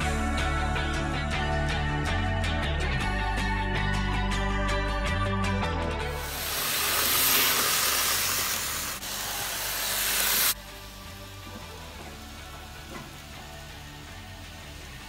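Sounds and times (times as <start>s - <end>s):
background guitar music: 0.0s - 9.1s, 10.2s - 15.0s
loud steady hiss: 6.1s - 15.0s.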